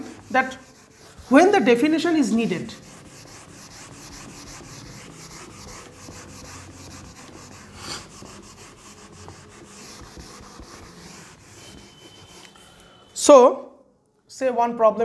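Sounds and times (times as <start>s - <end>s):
eraser wiping whiteboard: 0.0s - 12.8s.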